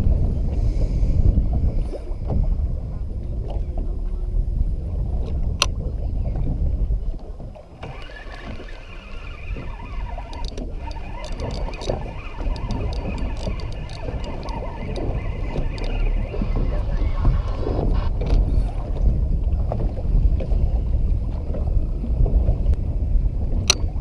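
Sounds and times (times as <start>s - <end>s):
water washing around boat: 0.0s - 24.0s
wind rumbling on microphone: 0.0s - 24.0s
water splashing: 7.2s - 20.6s
sharp clicks: 7.8s - 16.1s.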